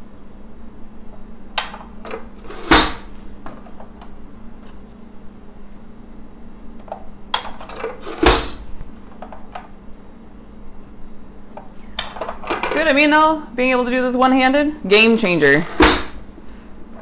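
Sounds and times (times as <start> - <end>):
food chopper plastic strikes: 6.9 - 9.5.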